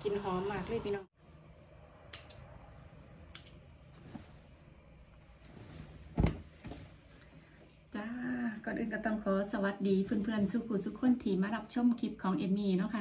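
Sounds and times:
thump: 0:06.1 - 0:06.8.

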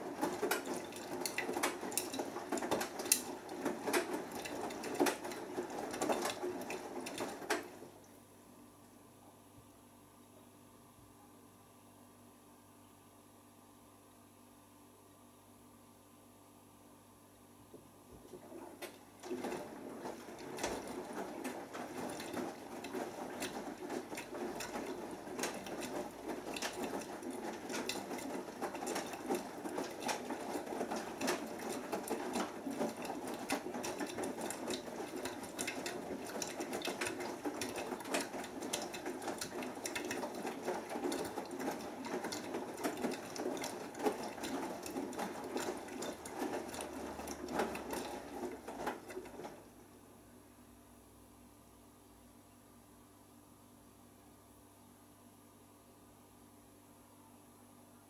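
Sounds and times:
washing machine drum tumbling clothes: 0:00.0 - 0:08.0, 0:17.8 - 0:49.8.

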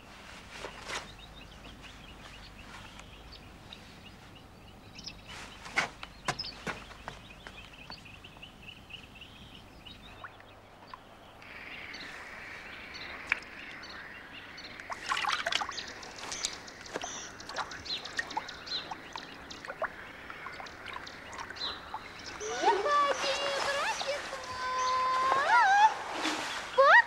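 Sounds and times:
water drips and splashes: 0:10.1 - 0:11.1, 0:13.1 - 0:13.9, 0:14.7 - 0:27.0
water trickling: 0:12.9 - 0:27.0.

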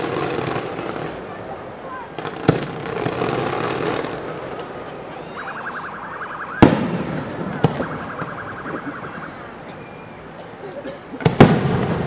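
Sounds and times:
rapidly pulsing beep: 0:05.2 - 0:09.6.

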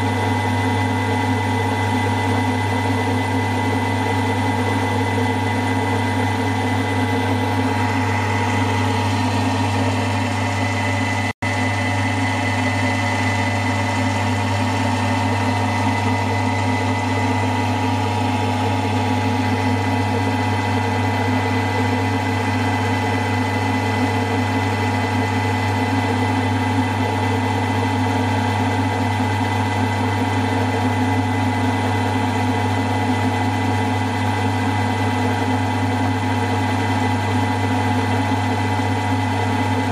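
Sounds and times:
milling machine motor hum: 0:00.0 - 0:39.9.

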